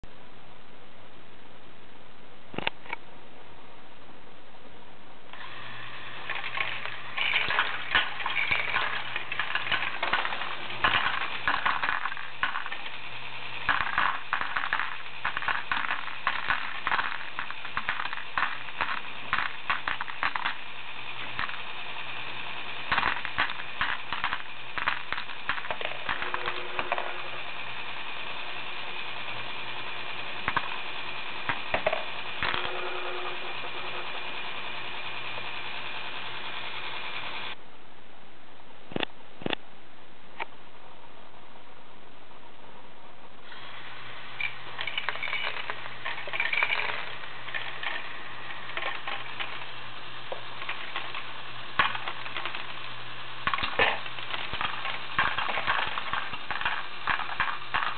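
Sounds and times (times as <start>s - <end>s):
electric motor humming: 5.4s - 37.6s
plastic pieces clattering into tray: 6.3s - 20.6s, 22.9s - 27.7s, 44.4s - 57.9s.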